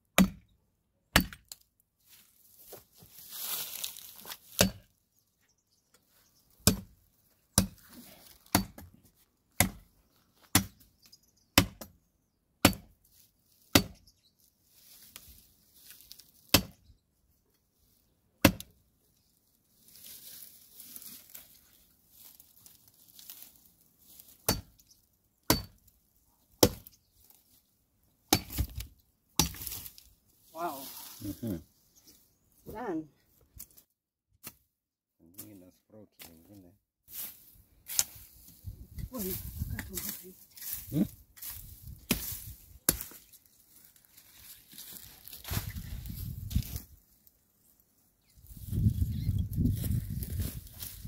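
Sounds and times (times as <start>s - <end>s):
blade chopping tree trunk: 0.1s - 0.5s, 1.1s - 1.6s, 4.5s - 4.8s, 6.6s - 7.8s, 8.4s - 9.0s, 9.6s - 9.9s, 10.5s - 10.8s, 11.6s - 12.0s, 12.6s - 13.0s, 13.7s - 14.0s, 16.5s - 16.8s, 18.4s - 18.7s, 24.4s - 24.8s, 25.5s - 25.8s, 26.6s - 27.0s, 28.3s - 29.9s, 41.8s - 43.2s.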